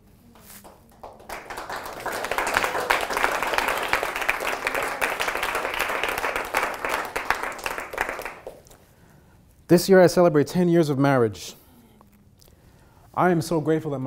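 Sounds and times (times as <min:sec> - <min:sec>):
audience applauding: 0:00.6 - 0:08.7.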